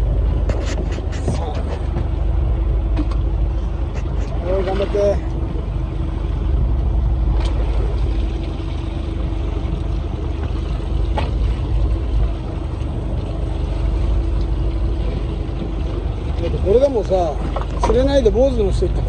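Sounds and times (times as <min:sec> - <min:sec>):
boat engine idling: 0:00.0 - 0:19.0
wind rumble on microphone: 0:00.0 - 0:19.0.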